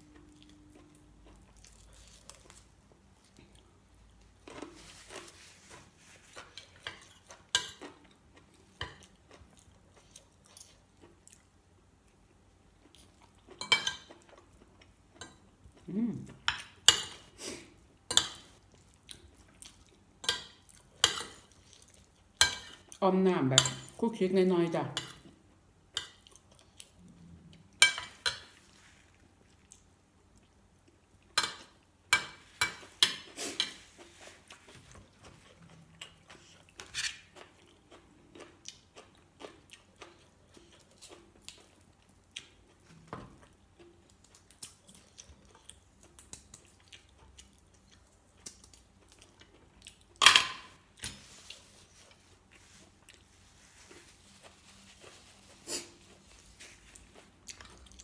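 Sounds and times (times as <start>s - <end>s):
chewing: 0.0s - 3.8s, 33.2s - 50.2s, 51.2s - 58.0s.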